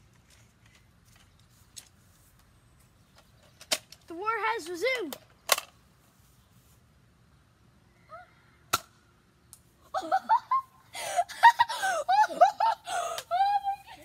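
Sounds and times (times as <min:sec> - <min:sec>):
children shouting and laughing: 0:09.8 - 0:14.0.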